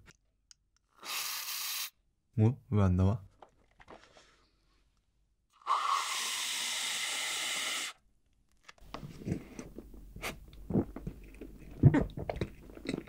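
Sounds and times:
aerosol can hissing: 0:01.0 - 0:02.0, 0:05.6 - 0:08.0.

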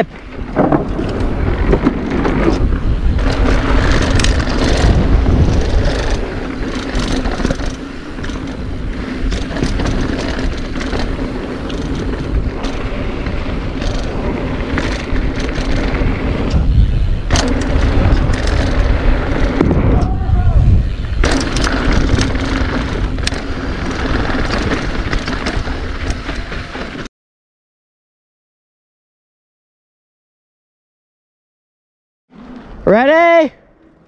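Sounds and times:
bike tyres rolling over dirt: 0:00.0 - 0:27.1
wind buffeting microphone: 0:00.2 - 0:26.7
bike rattling and knocking: 0:00.3 - 0:20.2, 0:20.8 - 0:27.1.

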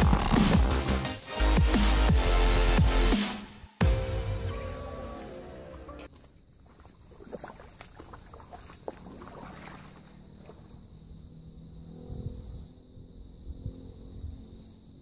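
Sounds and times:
electronic music: 0:00.0 - 0:06.1
person wading through water: 0:05.9 - 0:10.9.

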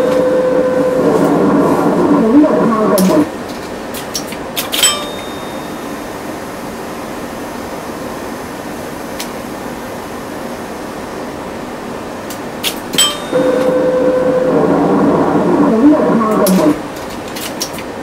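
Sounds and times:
motor humming: 0:00.0 - 0:03.3, 0:13.3 - 0:16.8.

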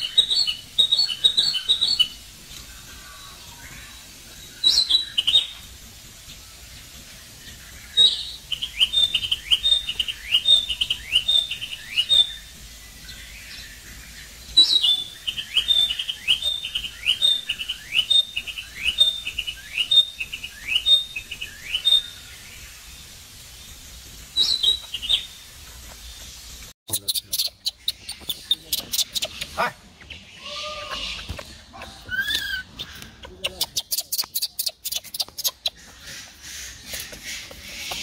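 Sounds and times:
bird singing: 0:00.0 - 0:05.7, 0:06.3 - 0:22.9, 0:26.9 - 0:38.0.

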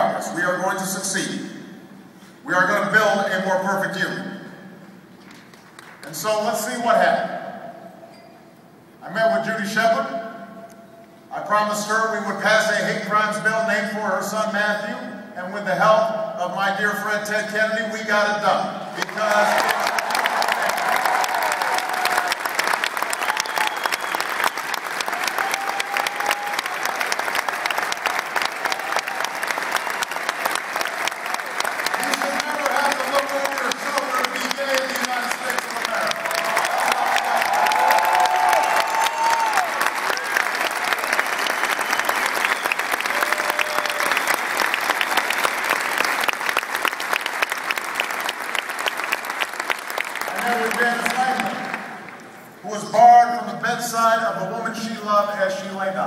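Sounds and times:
audience applauding: 0:19.0 - 0:52.2.

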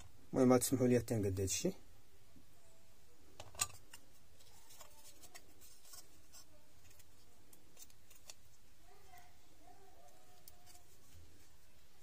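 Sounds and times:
fingers twisting wire: 0:10.1 - 0:11.1.

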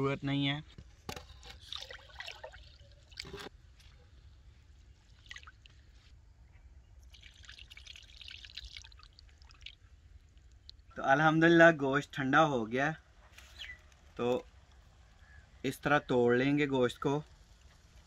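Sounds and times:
water splashes and trickles: 0:01.1 - 0:06.2, 0:06.9 - 0:11.0, 0:17.3 - 0:18.0
hands washing rice in water: 0:01.4 - 0:04.0.

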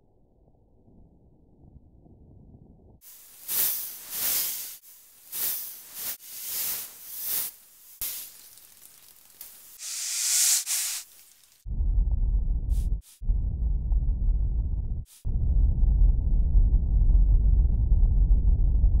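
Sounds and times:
hissing noise swells: 0:03.0 - 0:11.6.

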